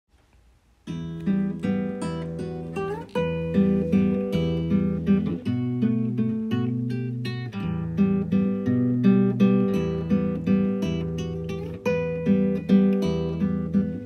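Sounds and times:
acoustic guitar picking: 0.8s - 14.0s.

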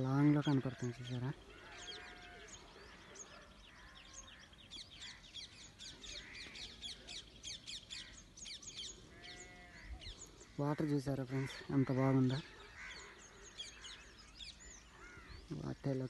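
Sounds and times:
small birds chirping: 0.0s - 16.0s.

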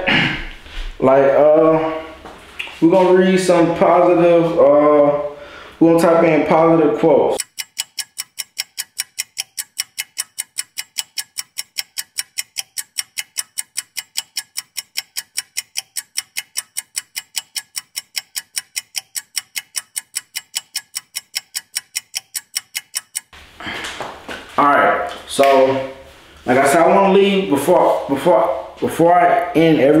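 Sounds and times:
clock ticking: 7.4s - 23.4s.

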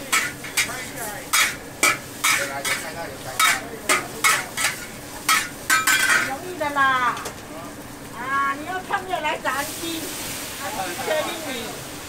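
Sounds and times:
sizzle of frying: 0.0s - 12.0s
metal spatula scraping wok: 0.1s - 6.3s.

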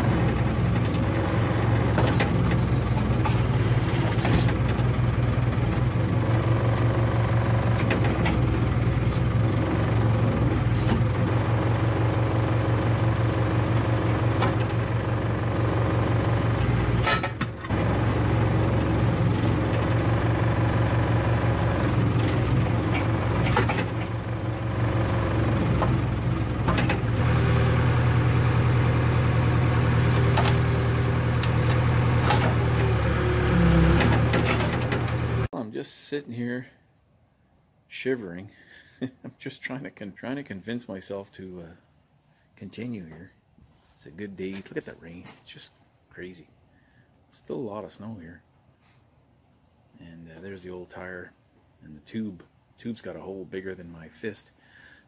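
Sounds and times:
diesel engine running: 0.0s - 35.5s
metal clanks: 16.6s - 17.8s, 21.8s - 24.2s.

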